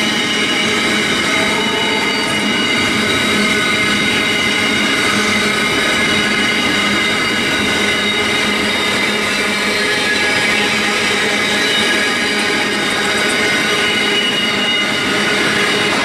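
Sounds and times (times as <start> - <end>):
high ringing tones: 0.0 - 16.0
steel wheels rushing on rail: 0.0 - 16.0.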